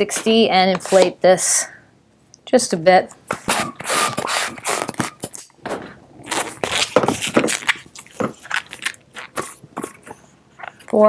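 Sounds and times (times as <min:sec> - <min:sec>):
balloon rubbing and scraping: 0:03.3 - 0:10.2.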